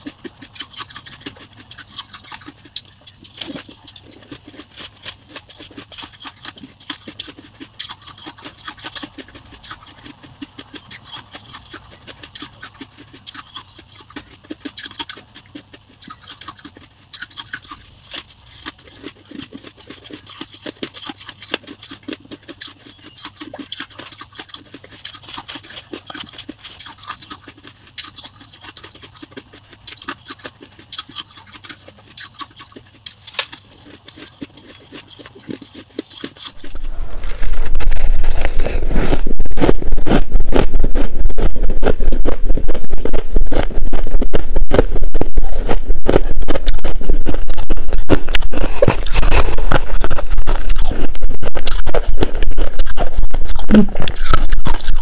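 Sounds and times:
crunching and chewing ice: 0.0s - 55.0s
low hum: 36.6s - 55.0s.

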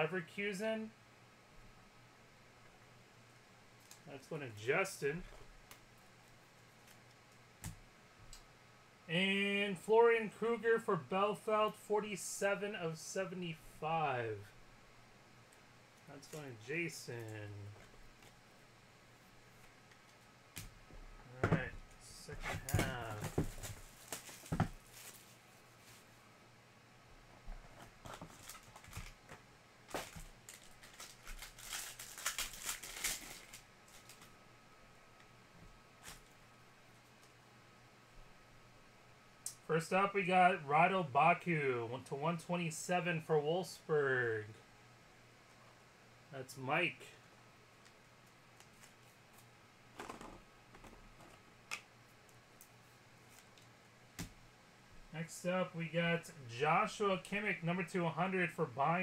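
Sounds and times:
soft rustle: 22.2s - 26.3s
plastic crinkling: 22.6s - 26.0s, 27.7s - 34.4s.

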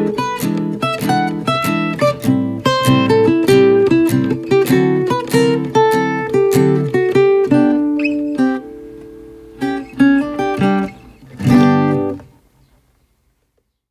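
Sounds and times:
guitar plucking and strumming: 0.0s - 12.6s.

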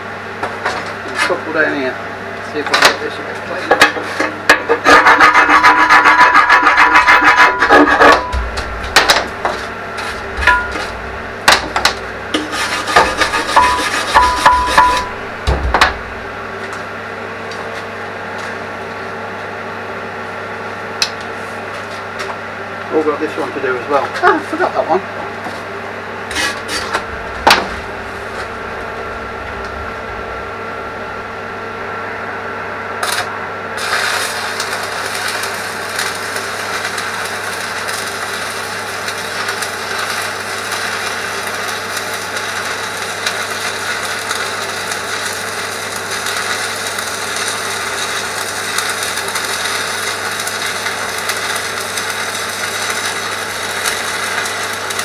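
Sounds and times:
angle grinder grinding metal: 4.5s - 16.0s, 26.3s - 31.6s
hum: 5.4s - 17.6s, 25.7s - 36.7s.

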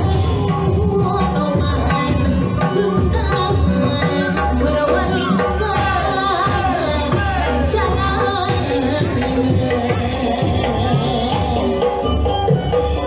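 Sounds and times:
drums and percussion: 0.0s - 13.0s.

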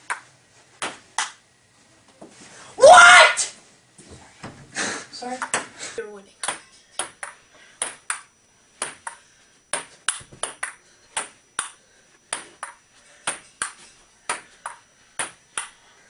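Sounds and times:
ping-pong ball clicking: 6.4s - 15.8s.

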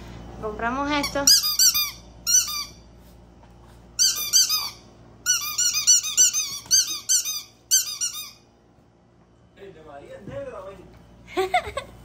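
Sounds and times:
squeaky dog toy squeaking: 1.0s - 2.8s, 4.0s - 8.5s.

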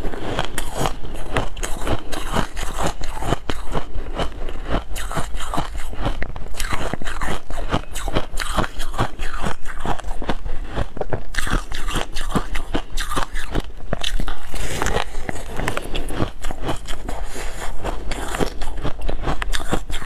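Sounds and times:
chewing crunchy ice: 0.0s - 20.0s.

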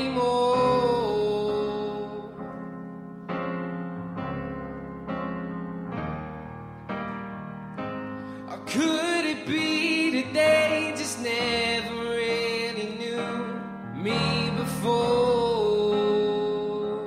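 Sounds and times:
person singing long notes: 0.0s - 2.6s, 8.5s - 17.0s
instrumental backing: 0.0s - 17.0s.

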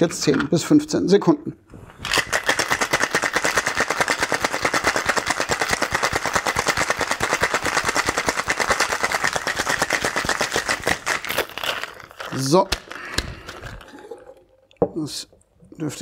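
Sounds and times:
ice rattling in cocktail shaker: 2.0s - 14.6s.

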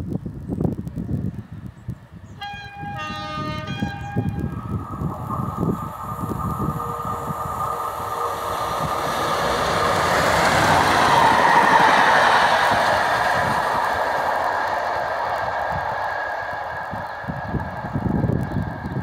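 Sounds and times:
diesel locomotive passing: 1.3s - 19.0s.

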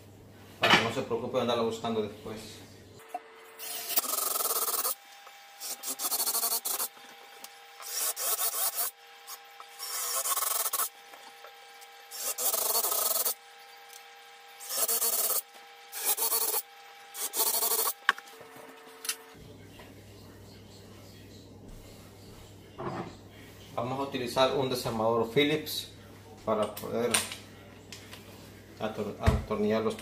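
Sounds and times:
cordless drill boring wood: 3.6s - 18.3s.

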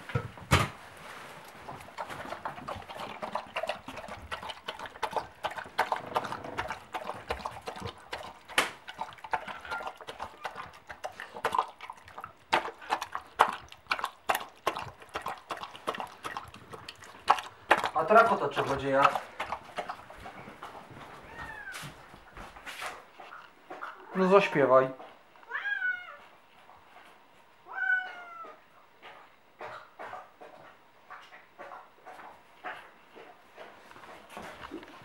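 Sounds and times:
cat chewing food: 1.3s - 21.0s.

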